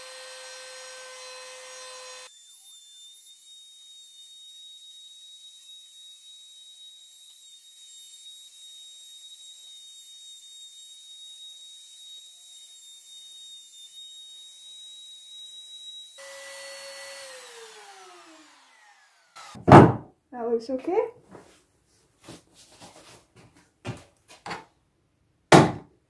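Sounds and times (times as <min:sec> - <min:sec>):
router whining: 0:00.0 - 0:19.7.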